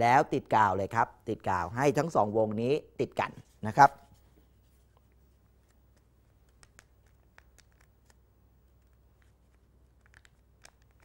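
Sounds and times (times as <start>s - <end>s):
paper rustling and clicks: 8.8s - 11.0s.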